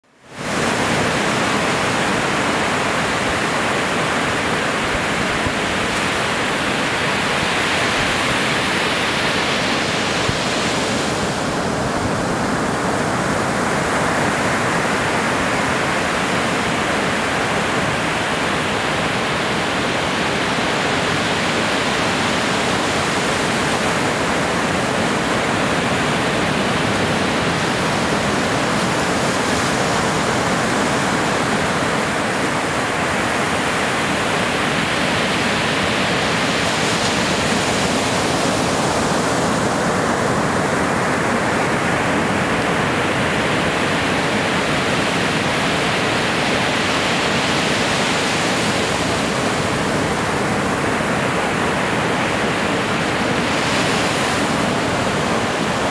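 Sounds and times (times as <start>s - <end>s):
surf breaking on beach: 0.3s - 55.9s.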